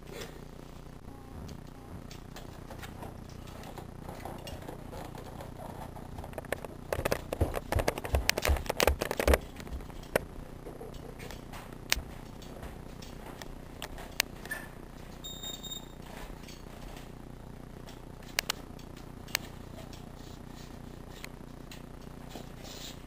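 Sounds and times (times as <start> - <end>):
footsteps on stairs: 7.0 - 10.3.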